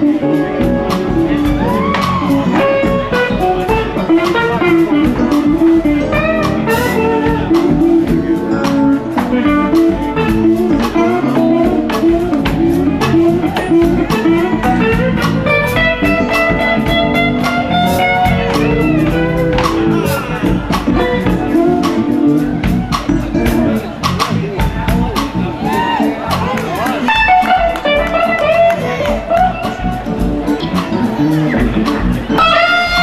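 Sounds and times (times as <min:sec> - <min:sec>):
drums and cymbals: 0:00.0 - 0:33.0
electric guitar lead lines: 0:00.0 - 0:33.0.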